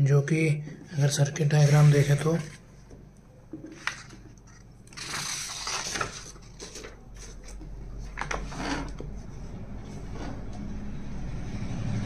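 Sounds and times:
plastic and paper scraping on desk: 1.4s - 2.6s, 3.7s - 7.6s, 8.2s - 9.1s.

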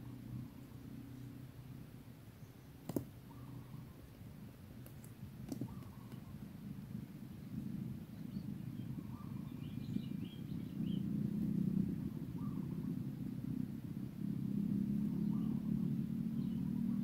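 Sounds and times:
steady low rumble: 0.0s - 17.0s
faint bird chirps: 2.4s - 4.2s, 5.5s - 6.4s, 7.5s - 11.1s, 12.3s - 12.9s, 15.1s - 17.0s.

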